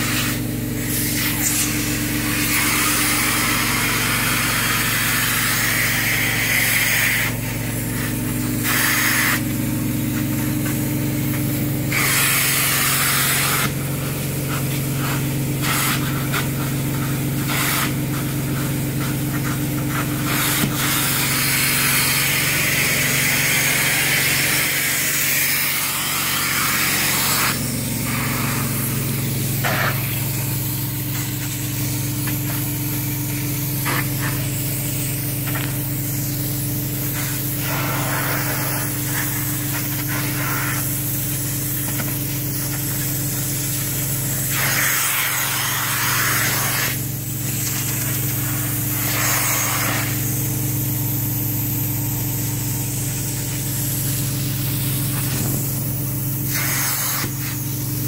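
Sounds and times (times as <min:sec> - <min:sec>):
cleaning unit humming: 0:00.0 - 0:58.0
wand spraying and vacuuming water: 0:00.0 - 0:58.0.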